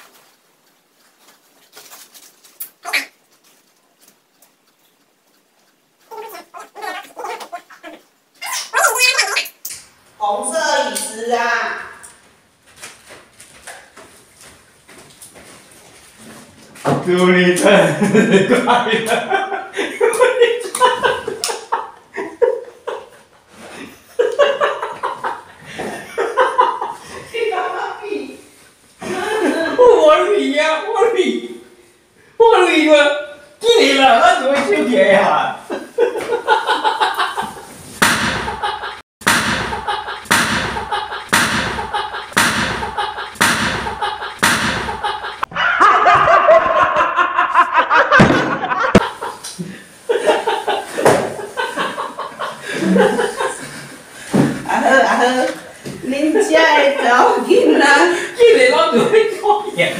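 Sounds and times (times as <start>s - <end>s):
hearty laughter: 17.8s - 27.5s, 38.4s - 39.0s, 39.7s - 54.0s
person laughing: 39.7s - 50.8s.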